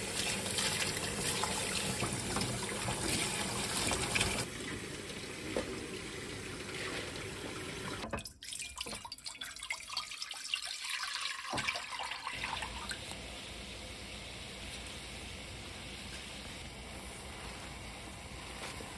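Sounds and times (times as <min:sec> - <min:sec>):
tap water running into sink: 0:00.0 - 0:13.2
water poured into a pan: 0:00.0 - 0:13.2.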